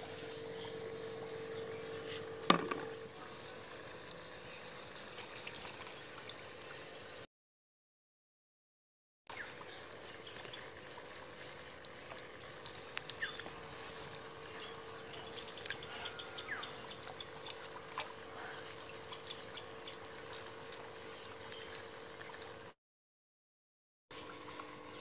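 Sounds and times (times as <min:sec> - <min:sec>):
faint steady hum: 0:00.0 - 0:07.3, 0:09.3 - 0:22.7
small water splashes: 0:02.5 - 0:07.2, 0:09.3 - 0:22.8
water trickling and dripping: 0:03.1 - 0:07.2, 0:09.3 - 0:22.7, 0:24.1 - 0:25.0.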